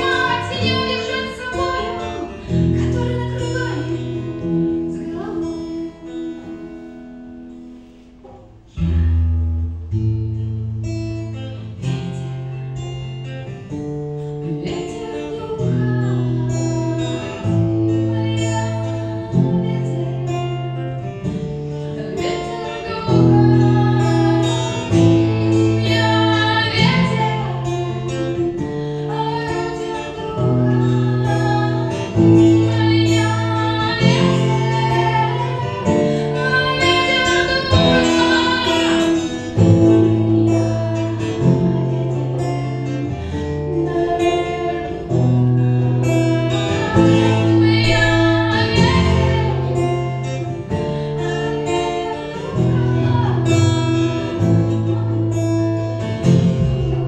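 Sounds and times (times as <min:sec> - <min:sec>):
woman singing into a microphone: 0:00.0 - 0:07.0, 0:14.4 - 0:57.0
acoustic guitar chords: 0:00.0 - 0:57.0.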